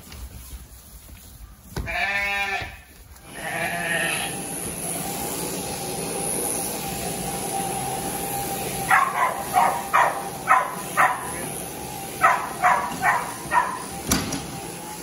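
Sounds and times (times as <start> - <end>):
electric shearing handpiece running: 3.2 - 15.0.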